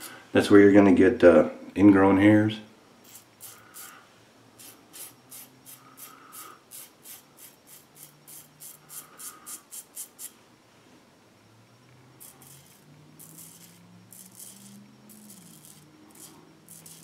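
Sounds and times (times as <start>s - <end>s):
razor scraping through stubble: 3.0s - 3.9s, 4.6s - 10.4s, 12.2s - 17.0s.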